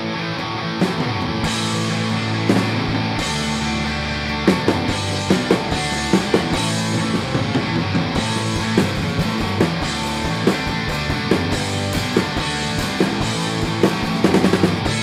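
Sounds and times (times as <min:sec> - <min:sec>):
rock music: 0:00.0 - 0:15.0
drum hits: 0:04.5 - 0:15.0.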